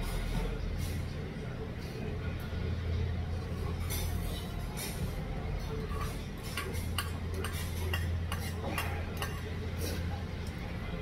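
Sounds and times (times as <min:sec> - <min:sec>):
utensils clinking against bowls: 0:05.8 - 0:09.6.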